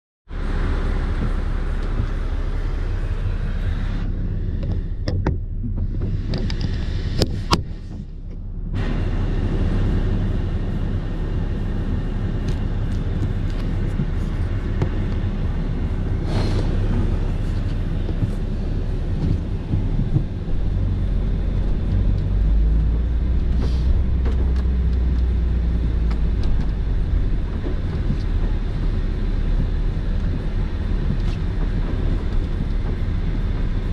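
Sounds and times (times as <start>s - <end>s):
van engine rumble: 0.3s - 33.9s
tyre noise on snow: 8.8s - 21.8s.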